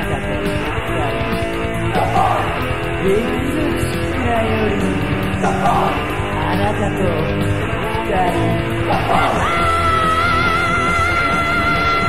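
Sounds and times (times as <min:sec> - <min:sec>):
heavy metal band playing: 0:00.0 - 0:12.0.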